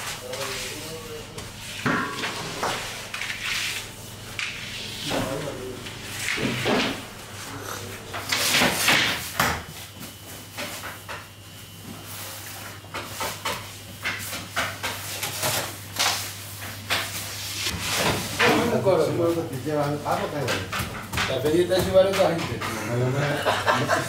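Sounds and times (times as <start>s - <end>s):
steady low hum: 0.0s - 9.4s.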